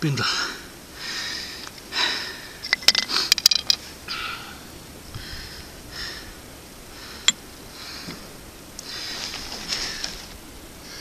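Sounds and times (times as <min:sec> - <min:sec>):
man breathing hard: 0:00.2 - 0:03.4, 0:04.0 - 0:10.2.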